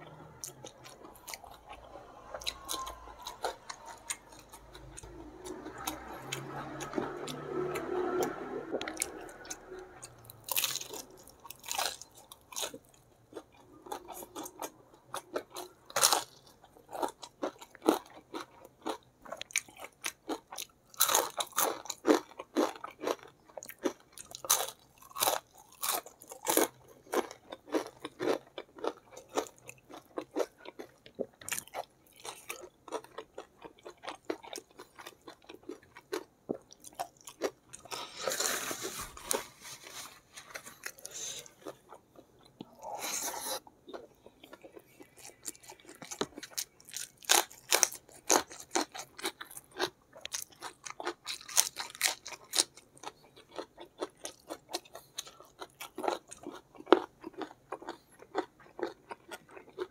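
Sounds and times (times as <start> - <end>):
crunching fried chicken: 0.1 - 59.9
wet chewing: 40.5 - 59.9.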